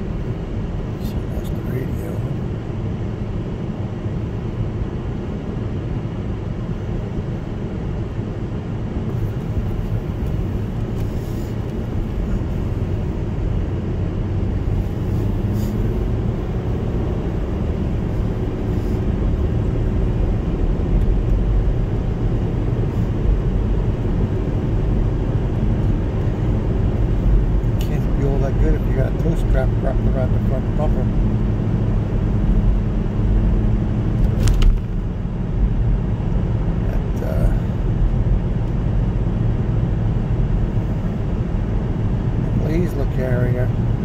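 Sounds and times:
engine and tyre rumble in car: 0:00.0 - 0:44.0.

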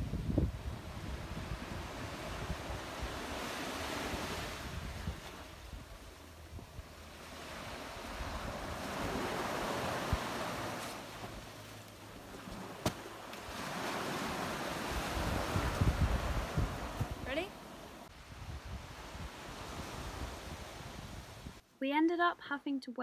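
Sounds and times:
wind buffeting microphone: 0:00.0 - 0:07.0, 0:13.6 - 0:17.4, 0:18.1 - 0:21.6
waves breaking on beach: 0:00.0 - 0:21.6.

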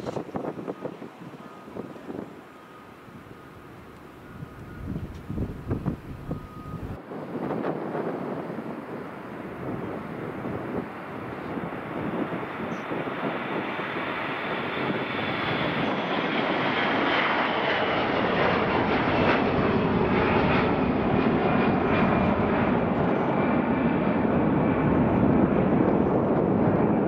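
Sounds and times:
turboprop plane taking off: 0:00.0 - 0:27.0
faint high whine: 0:00.6 - 0:07.0.

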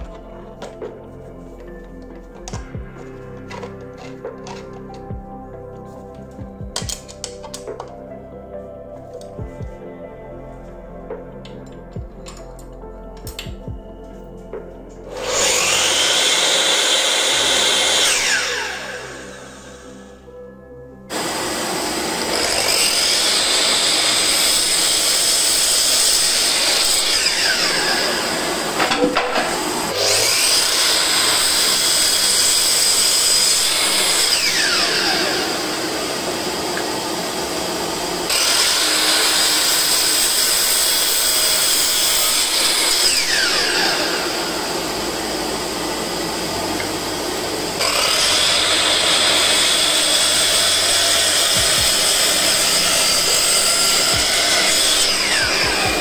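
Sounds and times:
saw cutting wood: 0:03.4 - 0:05.0, 0:15.0 - 0:20.2, 0:21.1 - 0:56.0
miter saw whining: 0:15.0 - 0:20.3, 0:21.1 - 0:56.0.

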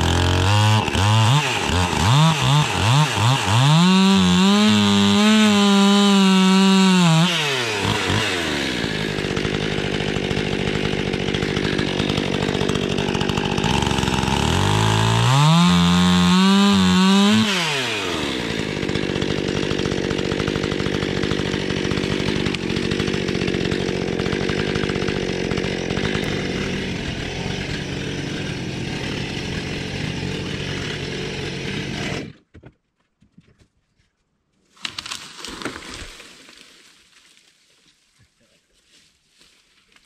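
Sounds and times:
chainsaw running: 0:00.0 - 0:32.5.

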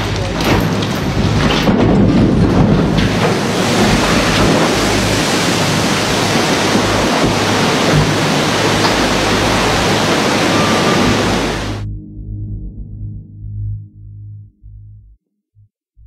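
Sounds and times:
rush of splashing water: 0:00.0 - 0:11.8.

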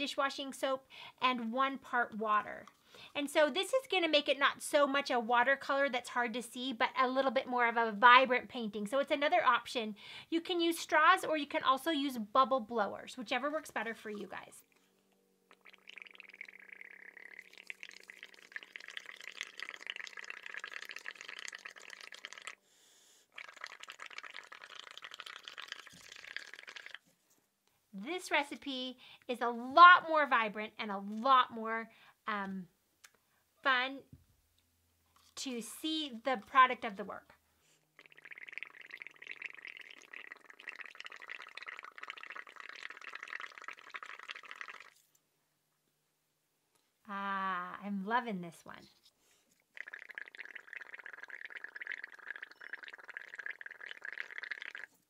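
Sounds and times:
air bubbling through straw: 0:15.5 - 0:22.6, 0:23.3 - 0:27.1, 0:37.9 - 0:45.0, 0:49.7 - 0:55.0.

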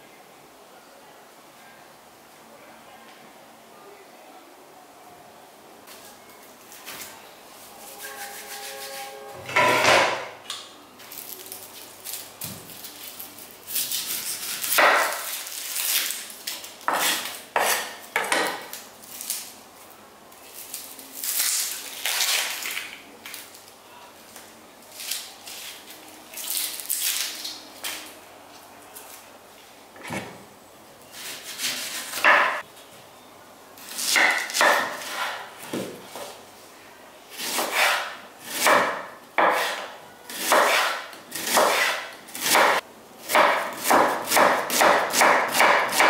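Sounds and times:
onion skin crackling and tearing: 0:11.0 - 0:17.5, 0:18.7 - 0:23.8, 0:24.9 - 0:28.2.

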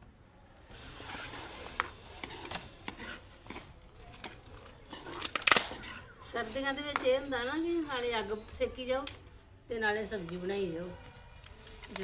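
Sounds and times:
metal spoon scraping a steel pan: 0:01.0 - 0:07.1.

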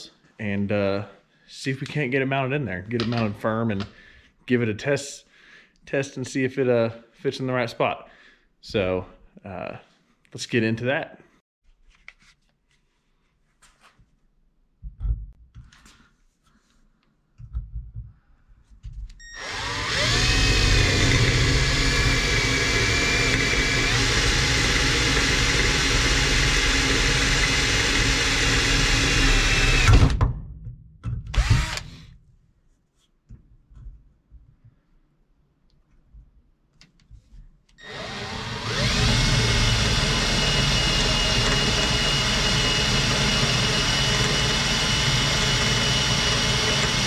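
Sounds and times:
cordless drill whining: 0:19.2 - 0:30.1, 0:31.4 - 0:32.0, 0:37.8 - 0:47.0.

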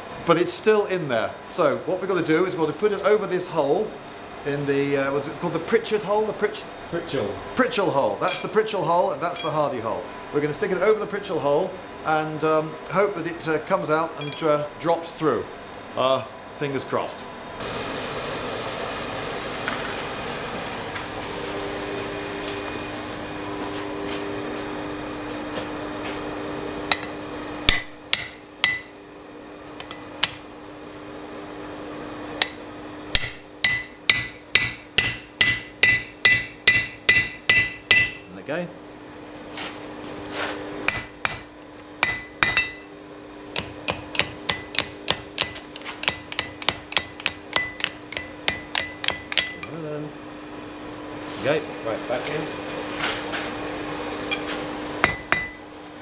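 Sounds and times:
steady hum: 0:00.0 - 0:56.0
hammer striking steel on anvil: 0:08.3 - 0:08.5, 0:14.2 - 0:14.5, 0:26.9 - 0:29.0, 0:32.4 - 0:38.3, 0:40.9 - 0:43.0, 0:43.6 - 0:49.8, 0:54.3 - 0:55.6.

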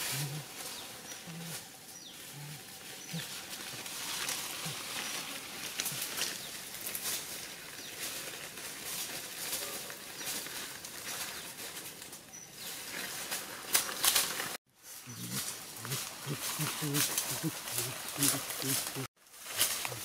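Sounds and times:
dry leaves rustling and crackling: 0:00.0 - 0:20.0
low grunts: 0:15.1 - 0:19.1.

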